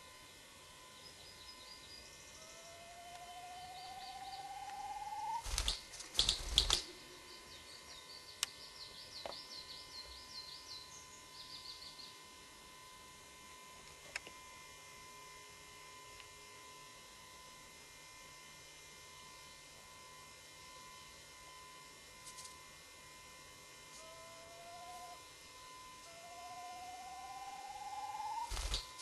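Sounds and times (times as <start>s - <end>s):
tape hiss: 0.0s - 14.4s, 23.9s - 29.0s
buzzing whine rising in pitch: 0.0s - 29.0s
thin constant hum: 0.0s - 29.0s.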